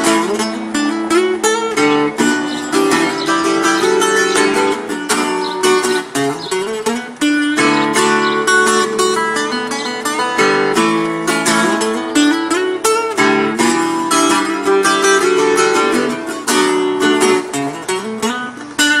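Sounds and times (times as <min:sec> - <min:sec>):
acoustic guitar playing: 0:00.0 - 0:19.0.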